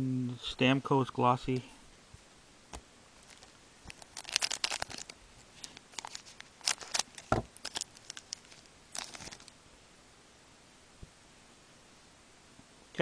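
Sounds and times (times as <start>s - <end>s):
foil wrappers crinkling: 3.2s - 9.5s.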